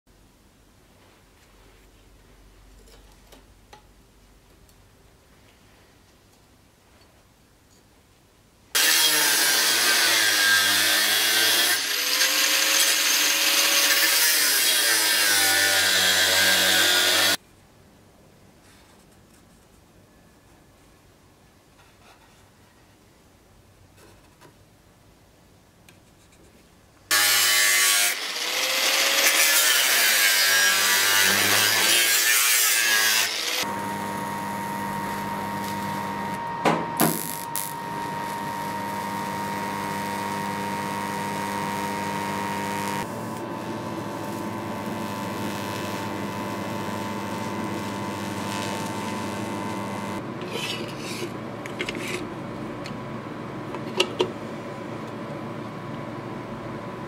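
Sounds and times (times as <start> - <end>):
power tool grinding steel: 8.8 - 17.4, 27.1 - 52.2
scribe scratching sheet steel: 50.4 - 52.3.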